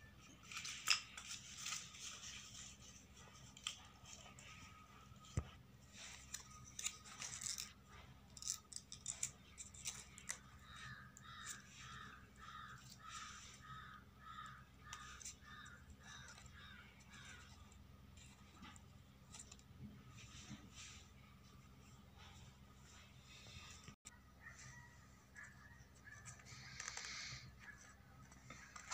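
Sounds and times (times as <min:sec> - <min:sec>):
bird calling: 0:10.1 - 0:17.7.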